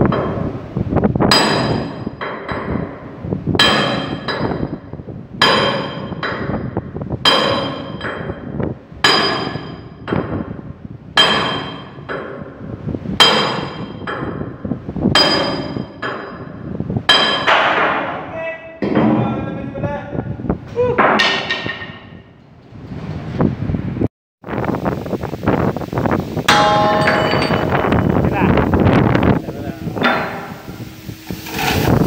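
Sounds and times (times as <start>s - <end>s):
hammer striking steel: 1.3s - 10.6s, 11.2s - 12.6s, 13.2s - 19.2s, 21.0s - 22.3s, 26.4s - 31.7s.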